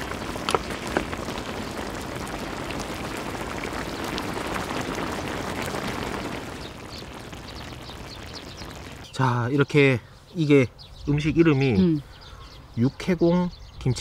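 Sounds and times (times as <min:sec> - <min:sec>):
sharp pops: 0:00.0 - 0:09.2
food bubbling in a pot: 0:00.0 - 0:09.3
steady crackle: 0:00.0 - 0:09.7.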